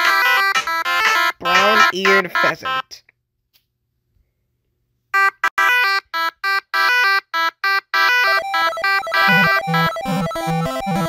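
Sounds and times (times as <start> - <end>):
buzzy electronic beep: 8.3 - 11.0.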